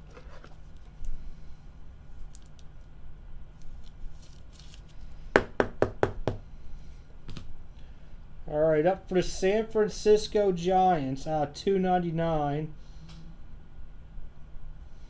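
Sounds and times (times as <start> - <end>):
trading cards handled on table: 3.6 - 5.1.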